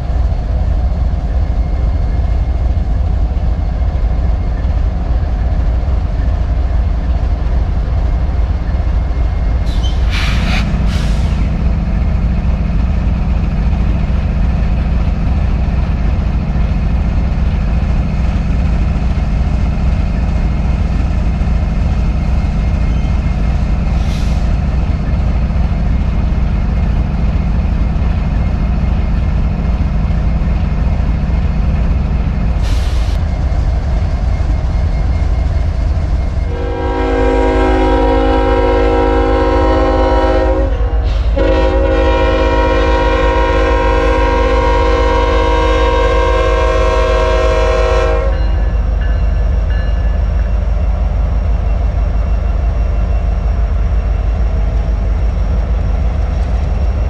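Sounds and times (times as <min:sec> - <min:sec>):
diesel locomotive engine rumbling: 0:00.0 - 0:57.0
locomotive air horn: 0:36.5 - 0:48.6.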